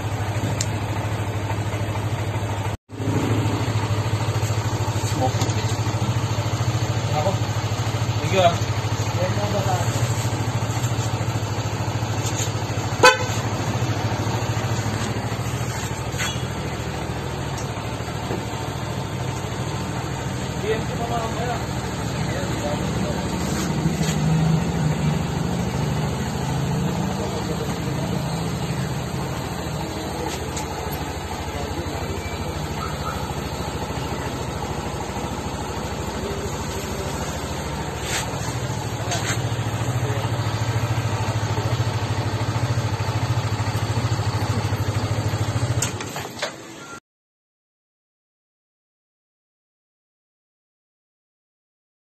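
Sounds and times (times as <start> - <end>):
scooter engine idling: 0.0 - 46.8
short horn beep: 12.9 - 13.6, 16.1 - 16.6.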